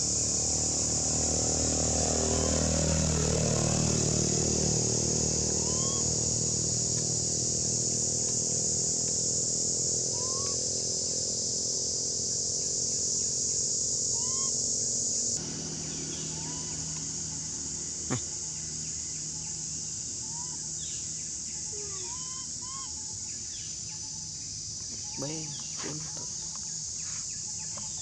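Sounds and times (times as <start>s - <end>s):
steady high hiss: 0.0s - 28.0s
short rising chirps: 2.2s - 2.7s, 4.8s - 6.2s, 10.1s - 10.6s, 14.1s - 14.6s.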